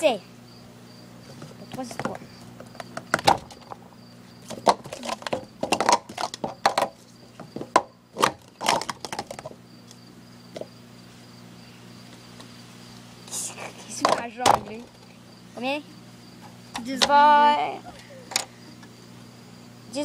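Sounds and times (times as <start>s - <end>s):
crickets chirping: 0.0s - 20.0s
plastic cups clacking: 4.5s - 9.6s.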